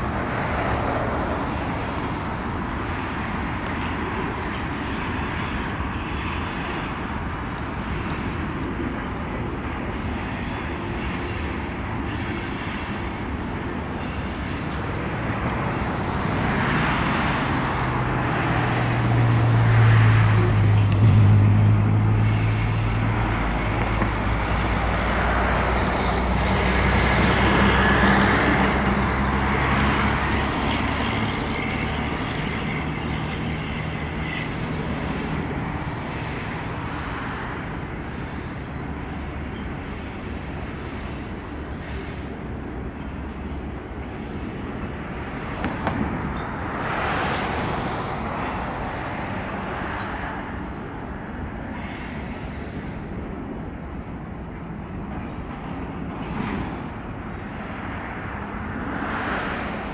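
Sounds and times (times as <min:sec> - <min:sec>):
diesel locomotive engine hum: 0:00.0 - 0:59.9
train wheels rumbling on rails: 0:50.6 - 0:59.9.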